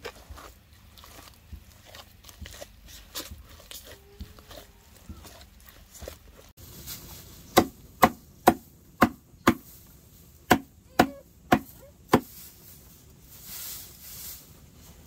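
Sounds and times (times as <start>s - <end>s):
blade chopping strikes: 7.6s - 9.6s, 10.5s - 12.3s.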